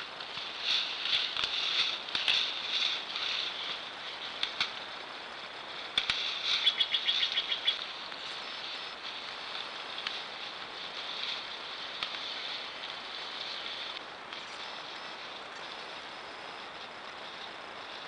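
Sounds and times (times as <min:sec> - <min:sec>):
meadow ambience: 0:00.0 - 0:18.0
sharp clicks: 0:04.4 - 0:04.8, 0:05.9 - 0:08.2
rapid high chirps: 0:06.0 - 0:09.5.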